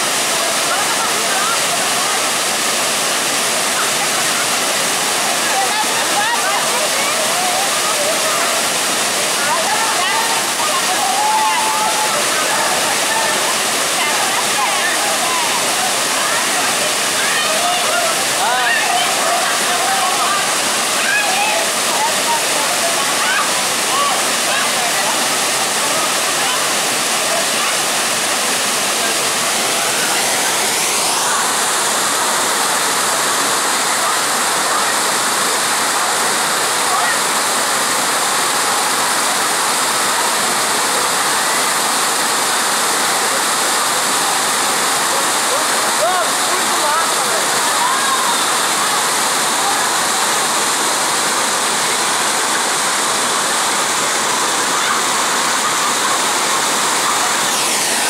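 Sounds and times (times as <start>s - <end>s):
waterfall pouring onto rock: 0.0s - 58.0s.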